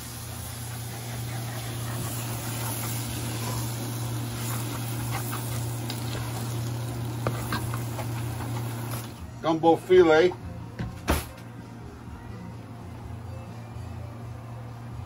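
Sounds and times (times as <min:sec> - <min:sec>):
vegetables and bacon sizzling in pot: 0:00.0 - 0:09.2
steady low hum: 0:00.0 - 0:09.4.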